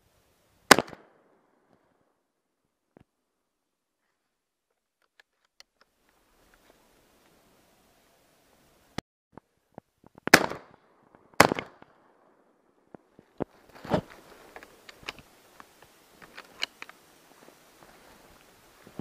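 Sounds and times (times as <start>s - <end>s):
gun handling clicks and rustling: 4.7s - 6.7s, 13.3s - 17.1s
shotgun shots with echo: 10.3s - 10.8s.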